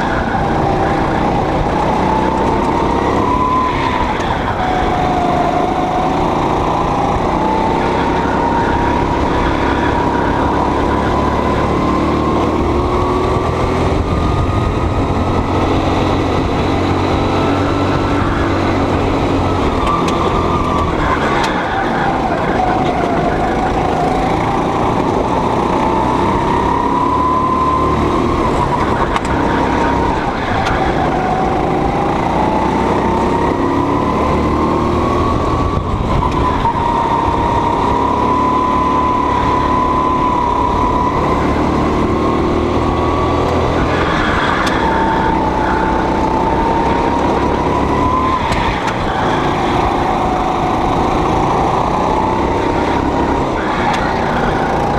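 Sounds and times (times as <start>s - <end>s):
go-kart engine running hard: 0.0s - 54.9s.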